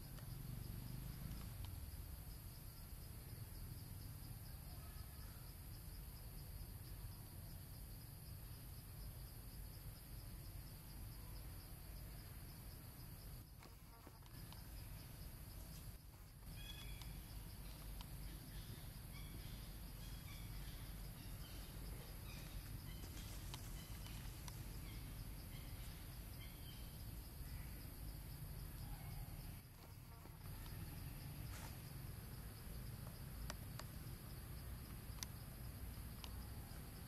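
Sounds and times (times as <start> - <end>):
insects trilling: 0.0 - 37.0
faint bird chirps: 4.3 - 5.5, 16.4 - 28.0.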